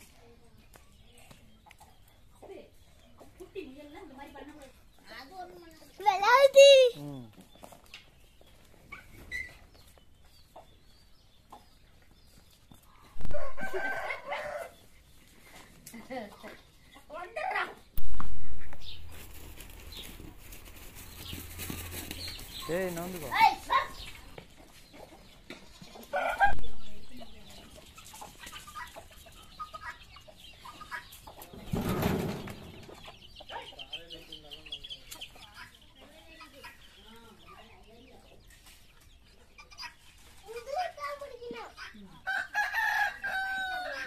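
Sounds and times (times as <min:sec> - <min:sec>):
chickens clucking: 0:00.0 - 0:44.0.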